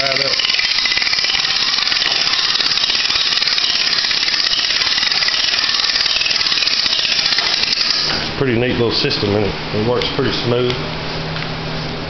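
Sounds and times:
car jack ratchet clicking: 0:00.0 - 0:08.2.

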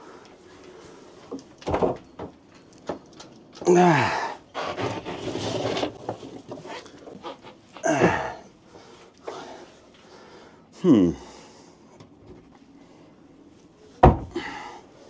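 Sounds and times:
man grunting with effort: 0:03.6 - 0:04.4, 0:07.8 - 0:08.5, 0:10.8 - 0:11.4.

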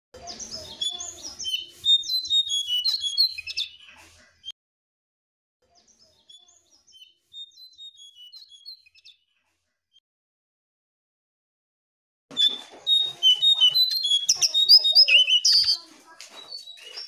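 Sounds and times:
songbird chirping: 0:00.2 - 0:04.5, 0:05.7 - 0:09.2, 0:12.3 - 0:17.0.

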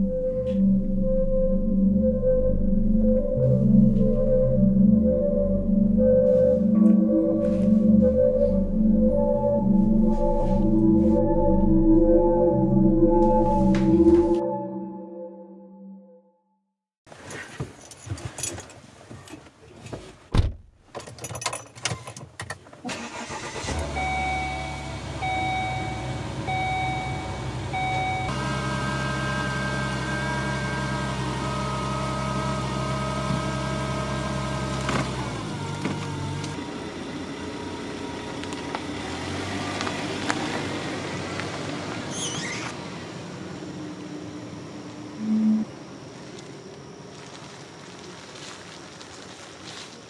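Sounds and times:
car engine starting and running: 0:00.0 - 0:14.4, 0:22.5 - 0:49.0
dashboard chime beeping: 0:00.3 - 0:15.2, 0:24.0 - 0:28.3
sharp thump: 0:20.3 - 0:20.7.

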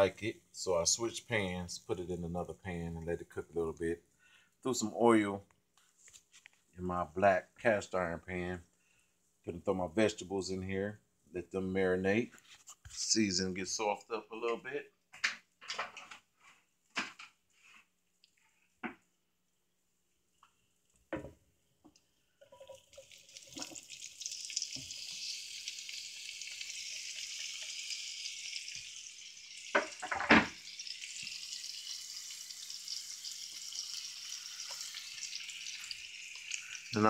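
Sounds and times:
vegetables sizzling in oil: 0:23.0 - 0:37.0.

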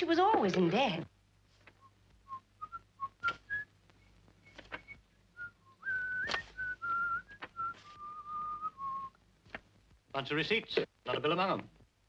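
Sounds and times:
papers rustling: 0:01.5 - 0:02.2, 0:03.2 - 0:05.0, 0:05.9 - 0:08.7, 0:09.4 - 0:10.1
person whistling softly: 0:01.8 - 0:09.2.

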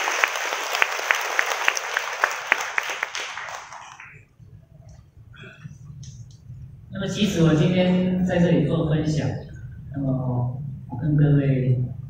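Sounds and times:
audience applauding: 0:00.0 - 0:04.2
sharp individual claps: 0:00.0 - 0:04.2.

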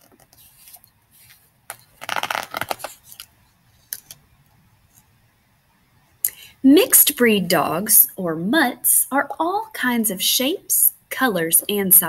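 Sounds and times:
paper page rustling: 0:00.0 - 0:04.2.

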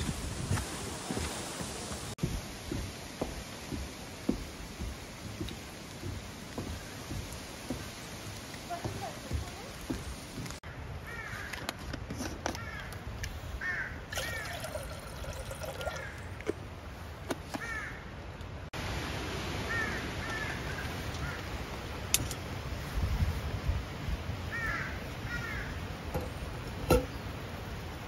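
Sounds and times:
steady background hiss: 0:00.0 - 0:11.0
crows cawing: 0:10.7 - 0:11.6, 0:12.6 - 0:13.0, 0:13.6 - 0:14.6, 0:15.8 - 0:16.3, 0:17.5 - 0:18.1, 0:19.7 - 0:21.5, 0:24.5 - 0:25.8.

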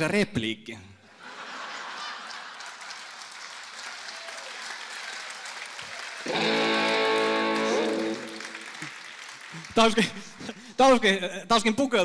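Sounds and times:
audience applauding: 0:01.6 - 0:10.5
electric guitar chord: 0:06.3 - 0:08.6.

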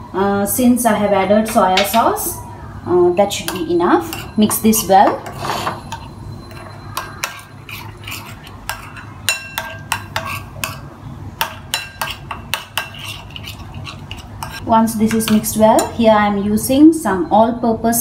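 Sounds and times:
metal spoon scraping a ceramic bowl: 0:03.4 - 0:16.0.

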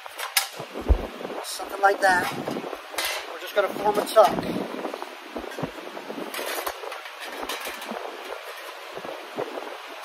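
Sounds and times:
steady workshop hiss: 0:00.0 - 0:10.0
soft low thumps on sheet steel: 0:00.8 - 0:01.2.

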